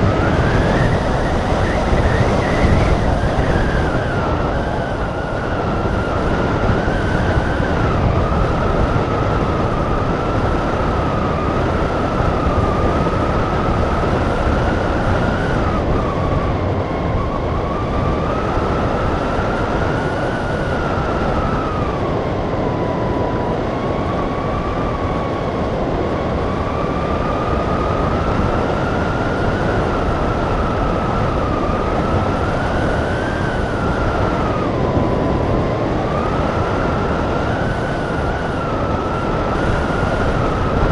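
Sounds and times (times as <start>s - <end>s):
wind buffeting microphone: 0.0s - 40.9s
wind whistle: 0.0s - 40.9s.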